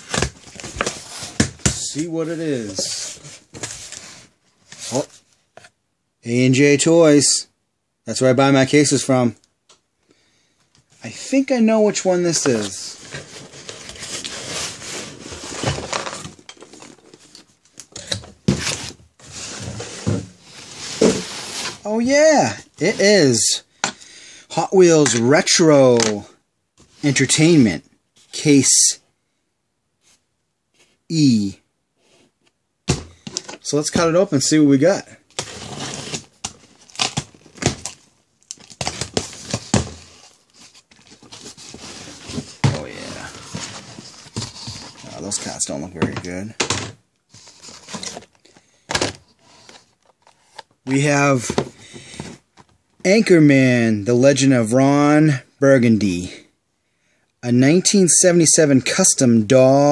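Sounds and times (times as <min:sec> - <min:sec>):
cardboard rustling and scraping: 0:00.0 - 0:05.7, 0:11.8 - 0:22.1, 0:35.4 - 0:38.0, 0:38.6 - 0:52.7
tape and cardboard tearing: 0:35.4 - 0:39.6.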